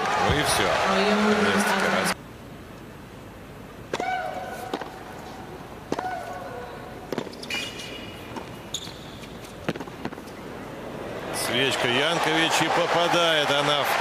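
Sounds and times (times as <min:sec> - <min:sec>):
racquet hitting tennis ball: 0:09.6 - 0:10.3.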